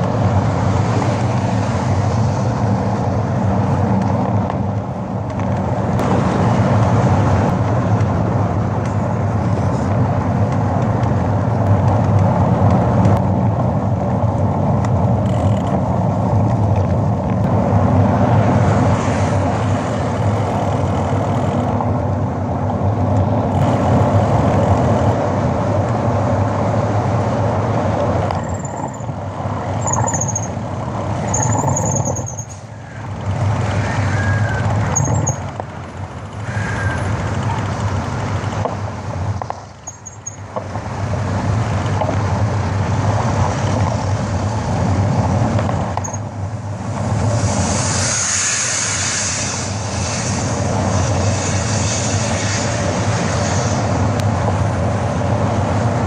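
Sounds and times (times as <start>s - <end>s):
road and engine noise inside car: 0.0s - 56.0s
high squeaks: 29.8s - 30.6s, 31.2s - 33.0s, 33.7s - 35.5s, 39.8s - 40.4s.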